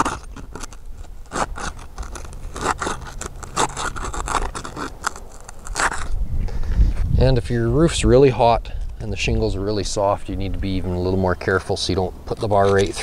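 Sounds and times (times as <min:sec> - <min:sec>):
pry bar scraping under shingles: 0:00.0 - 0:06.2, 0:10.8 - 0:13.0.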